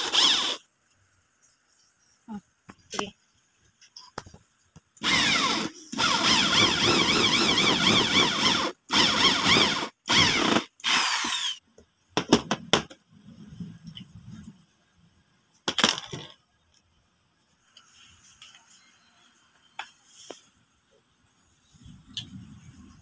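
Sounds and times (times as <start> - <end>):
power drill boring into wood: 0.0 - 0.6, 5.0 - 11.6.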